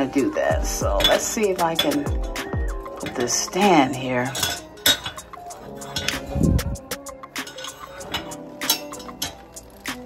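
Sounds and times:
soft background music: 0.0s - 10.0s
iron stand clicking on tile: 0.9s - 6.3s.

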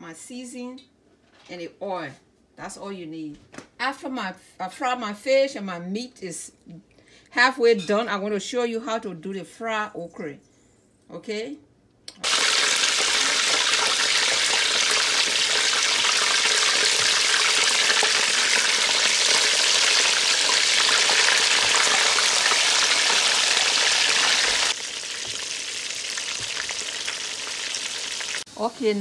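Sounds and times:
fish deep-frying in oil: 12.2s - 29.0s.

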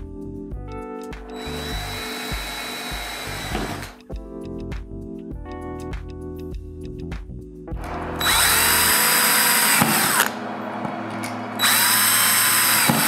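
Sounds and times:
drill drilling into metal: 1.4s - 4.0s, 8.2s - 10.3s, 11.6s - 13.0s.

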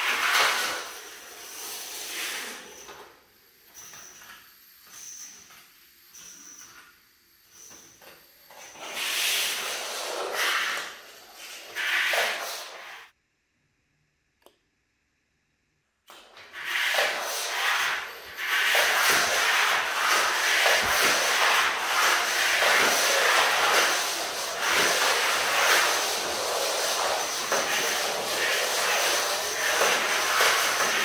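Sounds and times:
rubbing hiss of battery trains: 16.5s - 31.0s.

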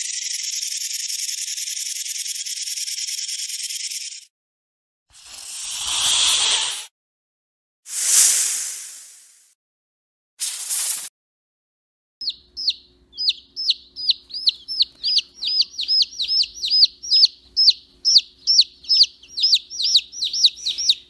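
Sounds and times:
short burst of hiss: 5.2s - 6.9s, 7.9s - 9.5s, 10.4s - 11.1s
quail chicks peeping: 12.2s - 21.0s.

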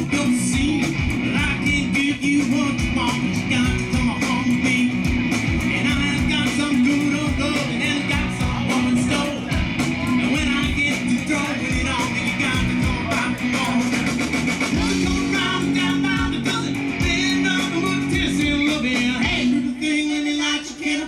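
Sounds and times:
drums with steady beat: 0.0s - 19.8s
bass guitar: 0.0s - 21.0s
electric guitars: 0.0s - 21.0s
person singing: 5.7s - 21.0s.

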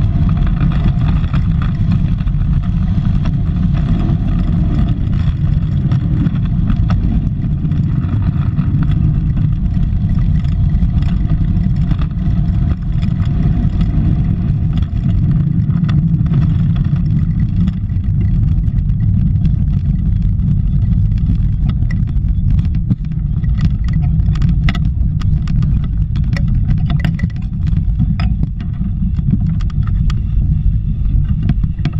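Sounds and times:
tyre noise on asphalt: 0.0s - 31.9s
wind buffeting microphone: 0.0s - 31.9s.

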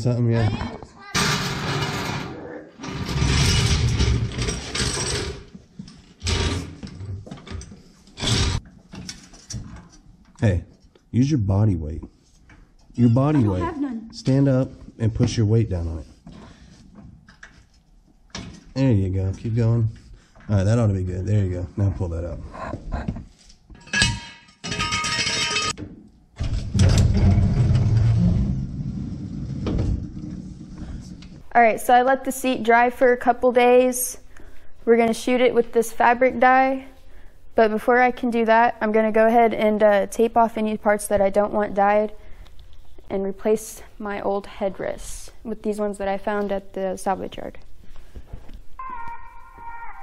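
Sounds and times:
floor jack rattling and clanking: 1.2s - 5.6s, 23.8s - 25.8s
metallic clatter and squeaking: 23.8s - 25.8s.

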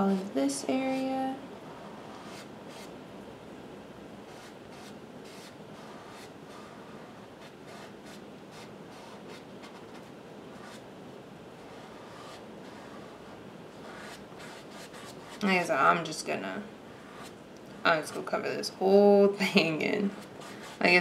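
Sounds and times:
paintbrush scrubbing canvas: 1.8s - 2.9s, 4.3s - 10.8s, 11.6s - 15.4s, 20.0s - 21.0s.

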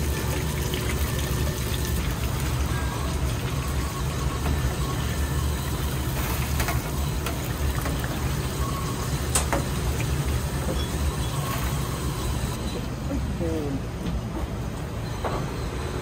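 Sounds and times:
food sizzling in deep fryer oil: 0.0s - 12.6s
low kitchen rumble: 0.0s - 15.7s.

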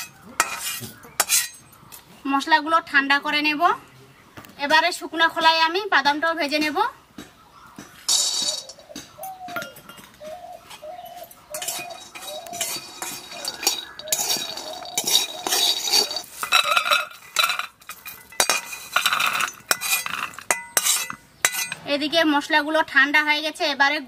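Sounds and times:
metal spatula scraping: 0.0s - 1.7s, 8.1s - 10.0s, 10.7s - 22.0s
peanuts rattling in metal wok: 8.1s - 8.9s, 11.6s - 21.7s.

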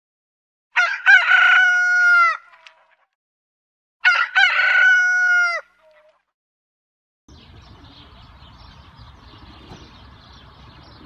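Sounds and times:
rooster crowing: 0.8s - 2.5s, 4.0s - 5.8s.

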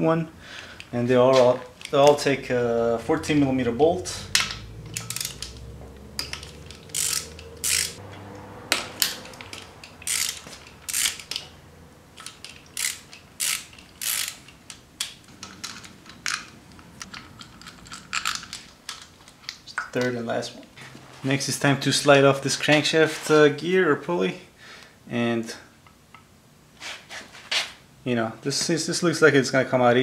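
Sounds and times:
socket ratchet clicking: 4.4s - 8.0s, 9.0s - 11.5s, 12.2s - 18.7s.

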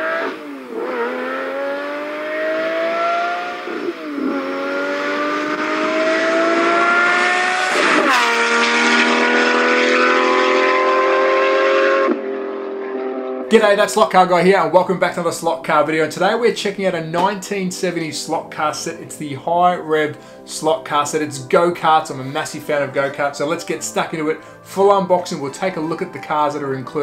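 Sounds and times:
race car engine accelerating: 0.0s - 13.5s.

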